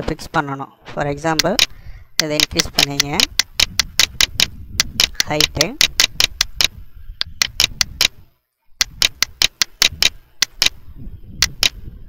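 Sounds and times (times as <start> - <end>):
mouse button clicking: 1.4 - 8.2, 8.8 - 10.8, 11.4 - 11.8.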